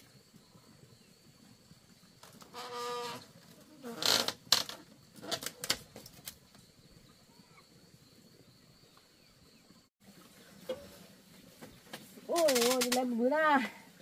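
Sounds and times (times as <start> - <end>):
bamboo clacking and rattling: 2.2 - 6.7, 10.6 - 13.3.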